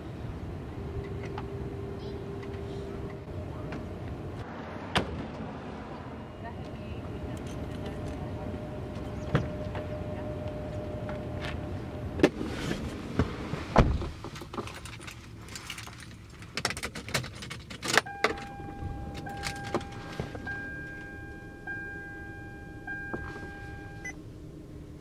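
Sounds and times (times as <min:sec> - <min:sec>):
car door thud: 0:13.7 - 0:14.2
electronic chime: 0:18.1 - 0:24.2.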